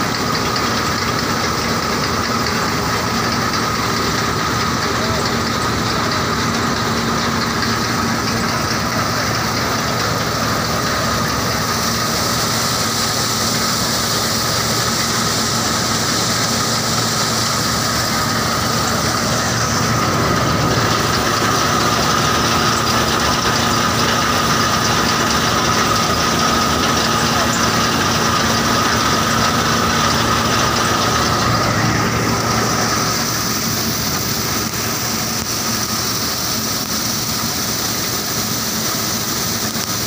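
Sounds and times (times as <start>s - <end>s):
threshing machine running: 0.0s - 40.0s
high hum: 4.2s - 36.0s.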